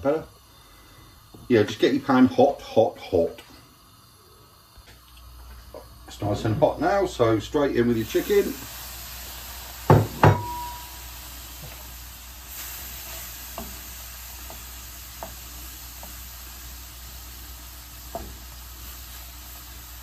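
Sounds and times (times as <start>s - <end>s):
chicken sizzling in a frying pan: 0.0s - 20.0s
wooden spoon tapping a pan: 9.9s - 10.8s, 13.6s - 13.8s, 14.4s - 15.4s, 18.1s - 18.4s.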